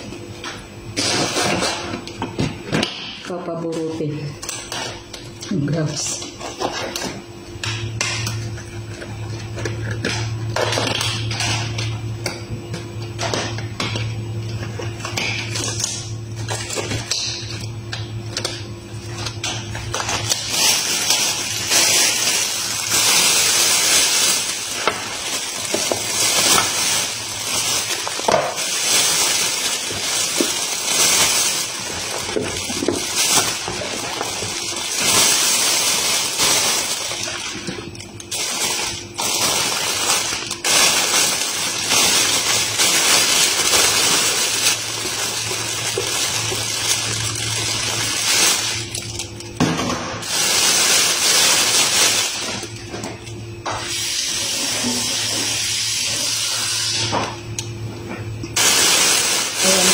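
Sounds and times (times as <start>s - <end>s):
plastic bag crinkling: 13.0s - 53.5s, 58.5s - 59.9s.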